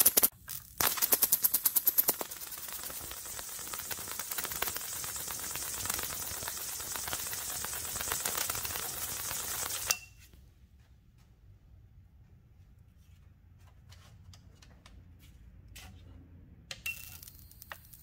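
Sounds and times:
electric arc crackling: 0.0 - 9.9.

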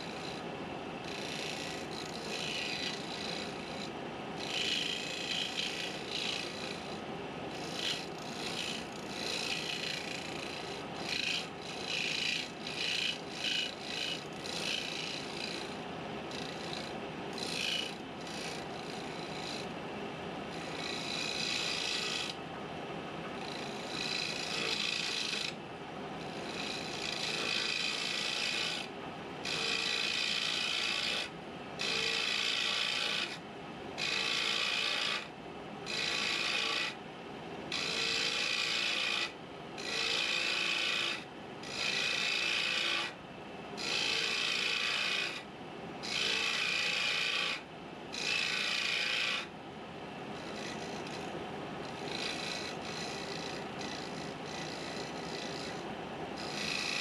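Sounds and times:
turning tool cutting wood: 0.0 - 19.7, 20.5 - 22.4, 23.4 - 25.6, 26.2 - 33.4, 34.0 - 35.3, 35.9 - 37.0, 37.7 - 43.2, 43.8 - 45.4, 46.0 - 47.6, 48.2 - 49.5, 50.4 - 55.8, 56.4 - 57.0
wood lathe running: 1.0 - 15.6, 16.3 - 19.6, 20.5 - 22.4, 23.4 - 25.5, 26.2 - 33.3, 34.0 - 35.2, 35.9 - 36.9, 37.7 - 43.1, 43.8 - 45.4, 46.0 - 47.6, 48.2 - 49.4, 51.9 - 55.8, 56.4 - 57.0.

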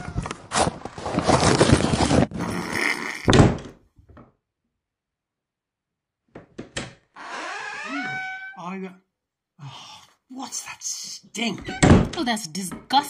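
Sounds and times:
loud scuffling: 0.0 - 2.3
door slamming shut: 6.6 - 8.6, 11.6 - 12.3.

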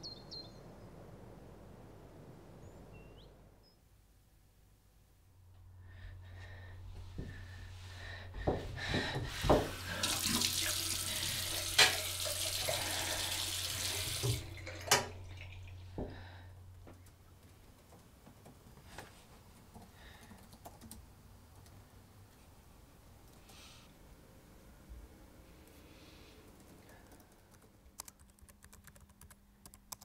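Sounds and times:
steady low hum: 0.0 - 10.0
bathroom sink tap running: 8.8 - 16.3
laptop keys clicking: 19.6 - 21.0, 26.5 - 30.0.

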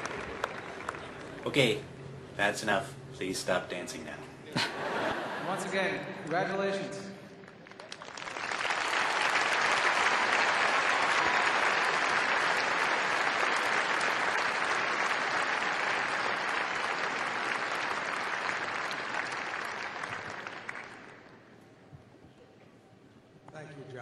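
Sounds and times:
large audience applauding: 0.0 - 1.6, 7.4 - 21.4.

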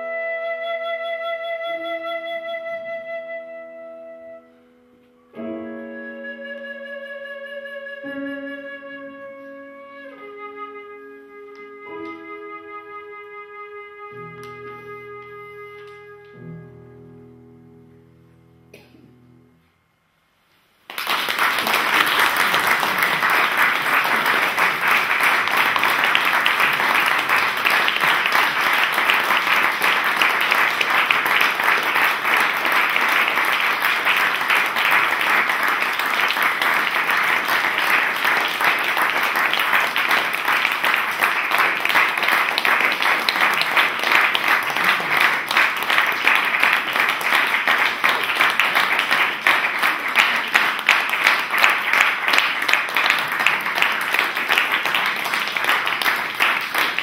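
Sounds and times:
audience applause: 20.8 - 57.0.

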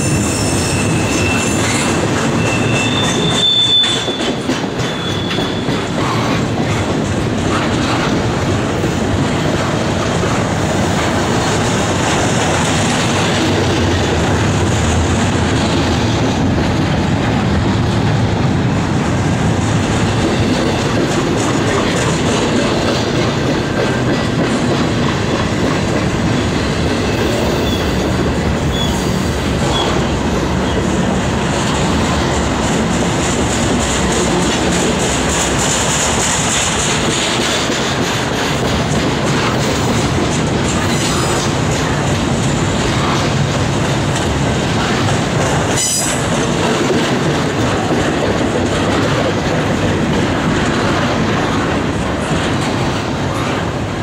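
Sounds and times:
train wheels on rails: 0.0 - 54.0
faint high wheel squeaks: 2.4 - 5.8.

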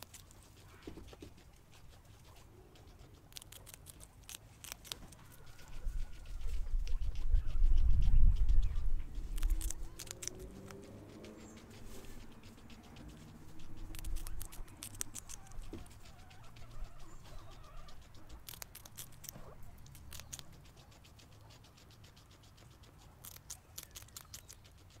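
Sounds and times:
guinea pig crunching food: 0.0 - 25.0.

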